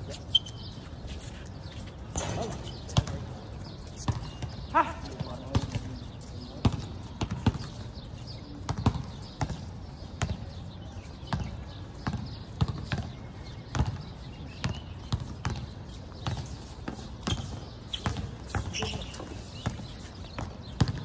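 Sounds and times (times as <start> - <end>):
basketball bouncing on court: 2.1 - 3.4, 4.0 - 5.8, 6.6 - 7.9, 8.6 - 10.6, 11.3 - 21.0.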